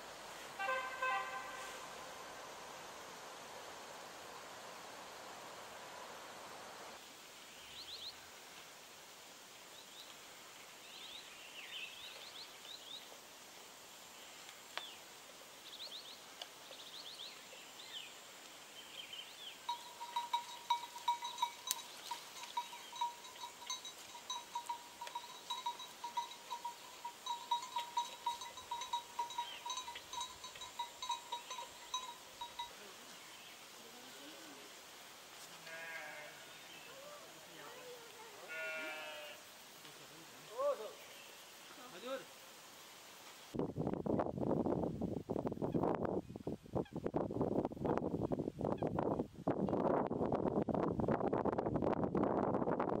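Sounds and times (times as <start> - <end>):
small birds chirping: 15.6 - 33.7
livestock bell ringing: 19.7 - 32.9.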